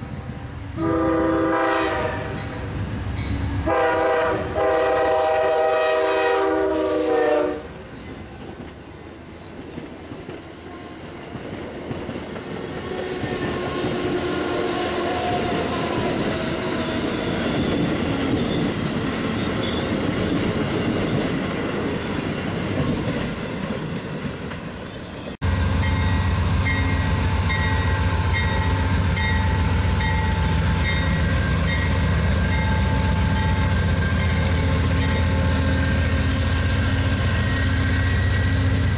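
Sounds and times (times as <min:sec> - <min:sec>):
train wheels rushing on rails: 0:00.0 - 0:38.9
train horn: 0:00.8 - 0:02.6, 0:03.6 - 0:07.8.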